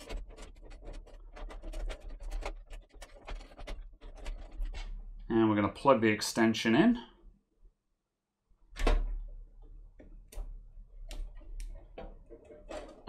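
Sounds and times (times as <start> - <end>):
sleeved cables rustling: 0.0 - 5.3.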